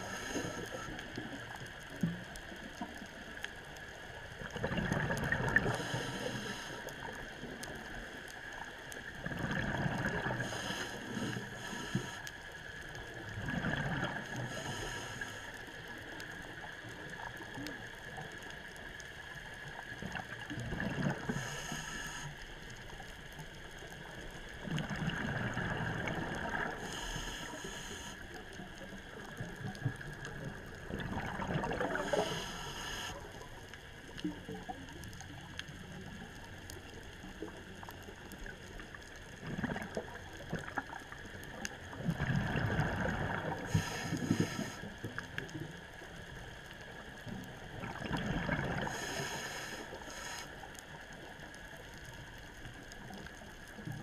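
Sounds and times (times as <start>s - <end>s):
exhaled bubbles gushing underwater: 4.2s - 6.1s, 9.1s - 11.3s, 13.2s - 14.8s, 19.8s - 21.6s, 24.5s - 27.1s, 29.2s - 34.8s, 37.5s - 49.7s
air hissing through regulator: 10.4s - 12.2s, 26.8s - 28.2s, 32.0s - 33.2s, 43.6s - 44.8s, 48.9s - 50.6s.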